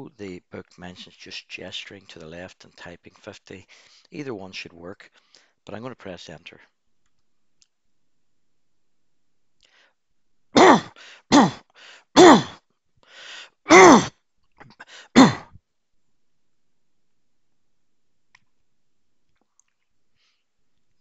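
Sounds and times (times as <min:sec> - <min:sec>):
quiet breaths: 0:00.1 - 0:05.7, 0:09.6 - 0:10.0, 0:10.9 - 0:12.1, 0:13.0 - 0:13.6, 0:14.6 - 0:15.2, 0:19.4 - 0:21.0
man coughing: 0:10.6 - 0:11.6, 0:12.2 - 0:12.6, 0:13.7 - 0:15.5.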